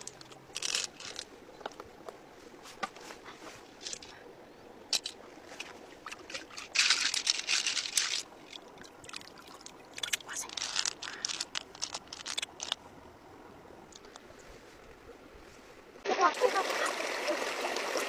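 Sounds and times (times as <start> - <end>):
water splashing: 5.0 - 12.8.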